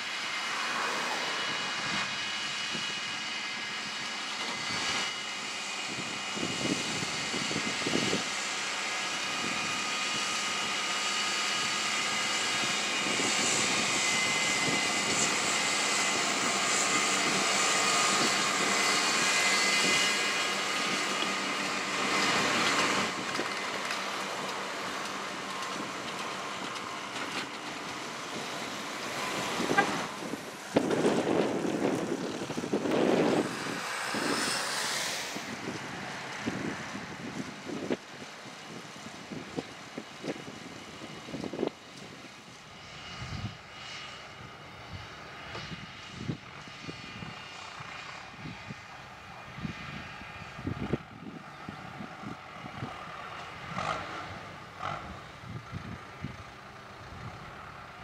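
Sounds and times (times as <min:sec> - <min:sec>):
high whine: 0:00.0 - 0:38.2
tractor engine under load: 0:07.3 - 0:42.2.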